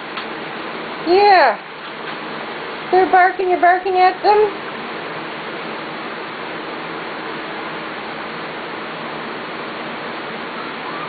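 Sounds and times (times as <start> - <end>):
steady background hiss: 0.0 - 11.0.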